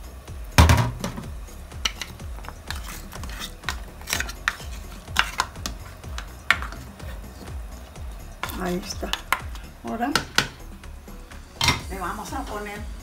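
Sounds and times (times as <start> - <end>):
spoon scraping and knocking pot: 0.8 - 10.7, 11.6 - 11.9.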